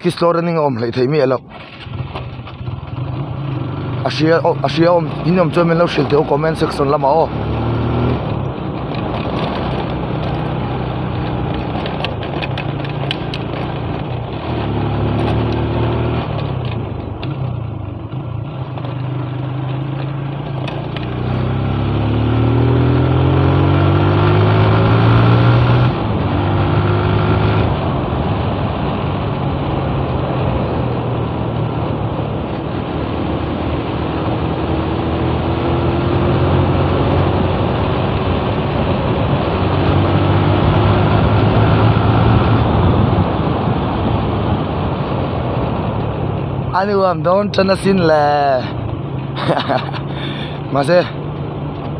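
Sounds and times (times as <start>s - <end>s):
motorcycle engine running: 1.5s - 51.9s.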